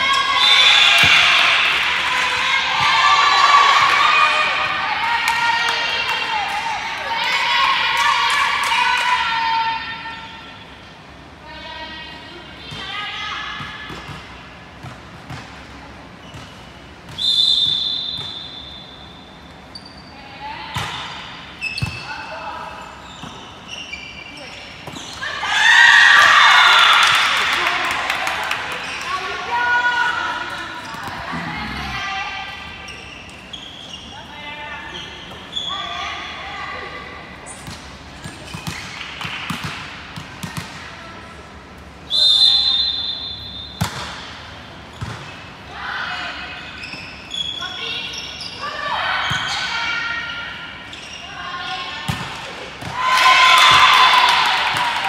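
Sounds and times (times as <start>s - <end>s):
volleyball bouncing on gym floor: 37.6s - 40.9s, 43.8s - 44.3s.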